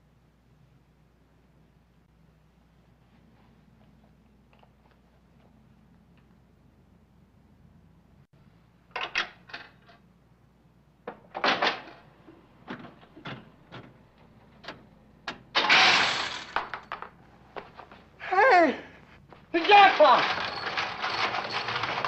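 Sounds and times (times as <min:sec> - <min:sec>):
slot machine rattling rush: 0:15.6 - 0:16.6, 0:19.6 - 0:22.0
slot machine clicks and clunks: 0:19.6 - 0:22.0.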